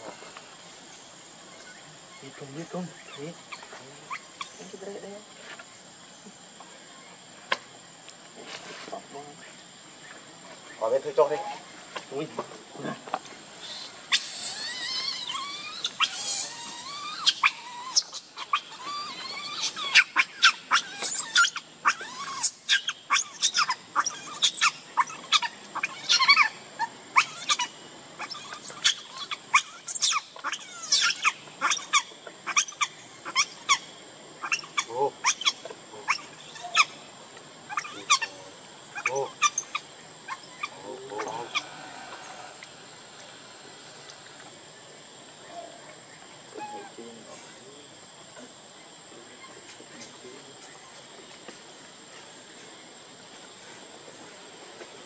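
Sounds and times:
baby monkey screaming and squealing: 0:01.6 - 0:04.8, 0:13.6 - 0:37.1, 0:37.7 - 0:42.6, 0:46.6 - 0:47.0.

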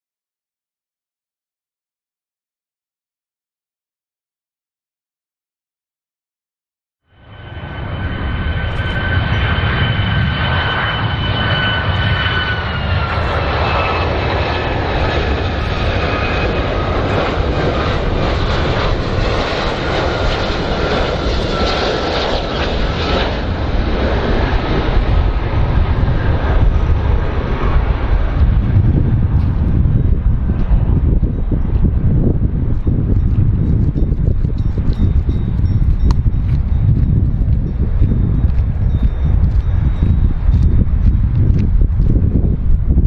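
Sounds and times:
jet engine rumble with high whine: 0:07.1 - 0:43.0.

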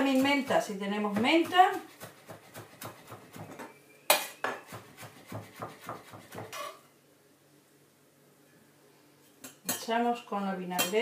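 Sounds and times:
knife chopping on wooden board: 0:01.1 - 0:06.7.

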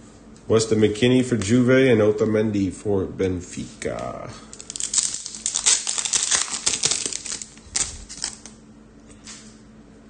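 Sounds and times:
trading cards clicking and crinkling: 0:04.5 - 0:08.6.

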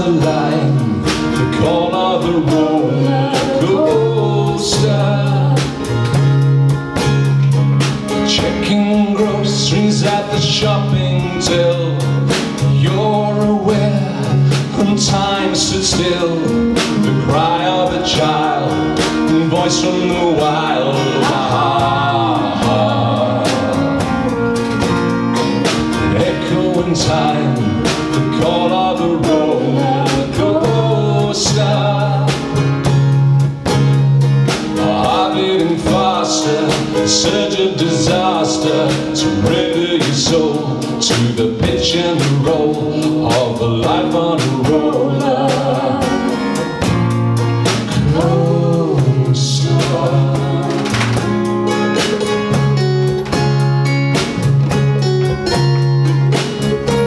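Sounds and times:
person singing: 0:00.0 - 0:06.0, 0:08.1 - 0:24.5, 0:26.1 - 0:32.7, 0:34.8 - 0:46.6, 0:47.9 - 0:51.2
acoustic guitars strumming: 0:00.0 - 0:57.0
drum kit beat: 0:00.0 - 0:57.0
electric bass: 0:00.0 - 0:57.0.

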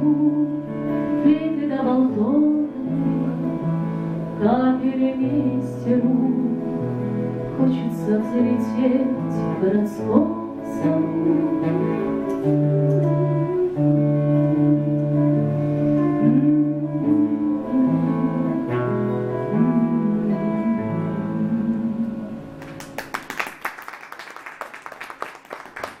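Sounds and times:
acoustic guitar: 0:00.0 - 0:23.0
audience clapping: 0:22.6 - 0:26.0.

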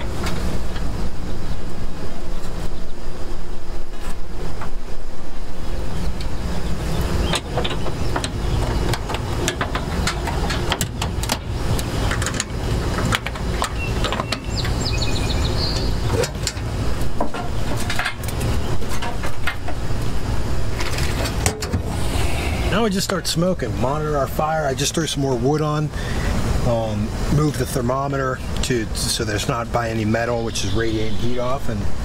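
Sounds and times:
high chirping: 0:05.8 - 0:16.4
metal smoker doors clattering: 0:07.0 - 0:22.1.

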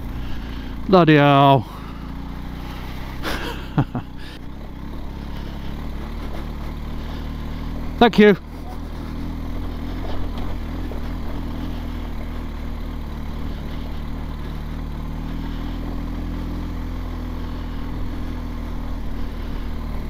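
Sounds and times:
motorcycle engine at low revs: 0:00.0 - 0:20.0.

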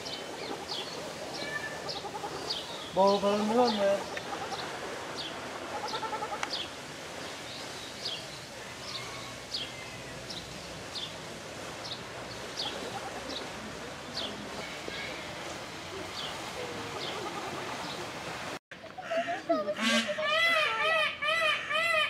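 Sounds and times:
rapid quavering bird call: 0:00.0 - 0:04.8, 0:05.6 - 0:06.6, 0:19.0 - 0:22.0.

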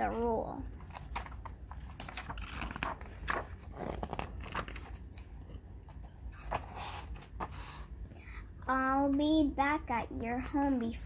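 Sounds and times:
paper pages rustling: 0:00.0 - 0:08.0.

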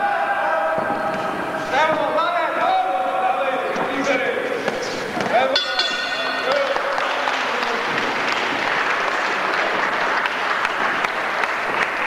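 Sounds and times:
audience applauding: 0:06.2 - 0:12.0.

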